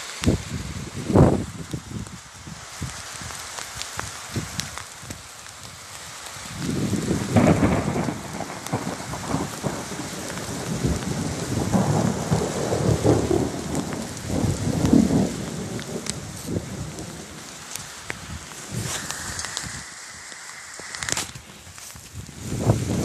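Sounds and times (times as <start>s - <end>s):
rain hiss: 0.0s - 23.0s
thunder rolling: 6.7s - 21.4s.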